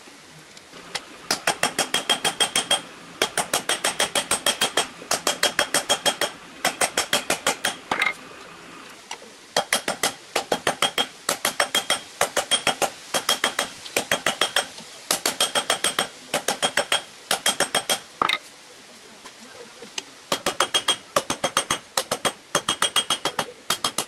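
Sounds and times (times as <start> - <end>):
hammer striking steel on anvil: 1.3 - 8.1.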